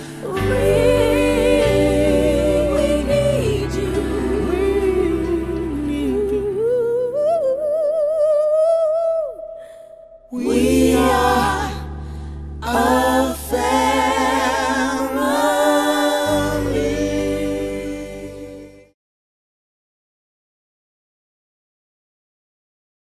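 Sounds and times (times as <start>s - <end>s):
song with several voices and bass: 0.0s - 7.2s, 10.3s - 19.0s.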